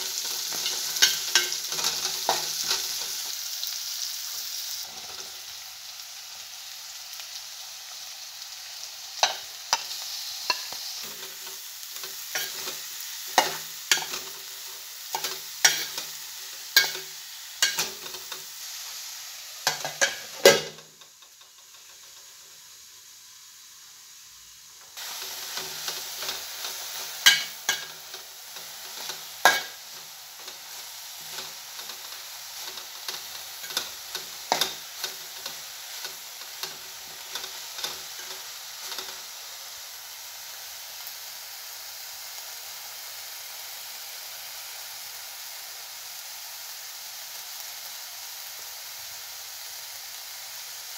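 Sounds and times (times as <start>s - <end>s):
sizzling in hot oil: 0.0s - 50.9s
spoon scraping and clinking pot: 0.2s - 3.1s, 12.0s - 12.8s, 13.4s - 14.4s, 15.2s - 16.2s, 16.8s - 18.4s, 19.6s - 20.9s, 25.4s - 39.2s
pot lid clanking: 19.7s - 20.9s, 29.0s - 30.6s.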